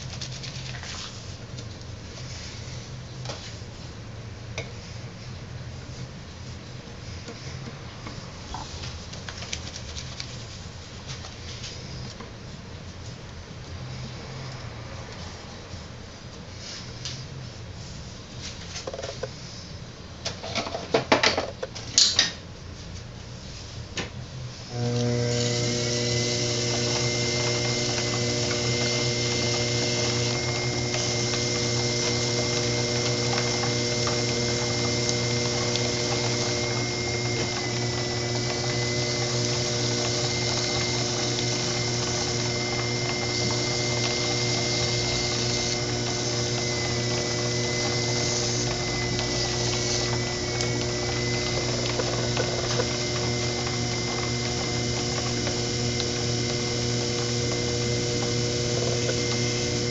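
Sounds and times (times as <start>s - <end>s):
potter's wheel motor whining: 24.7s - 59.9s.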